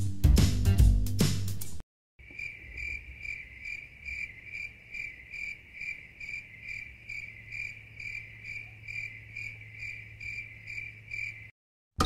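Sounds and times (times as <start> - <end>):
music: 0.0 - 1.8
cricket chirping: 2.2 - 11.6.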